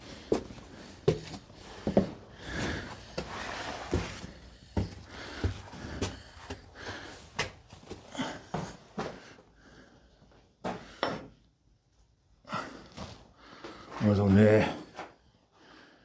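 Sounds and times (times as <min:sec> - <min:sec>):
footsteps on a hard floor: 0:00.2 - 0:09.3.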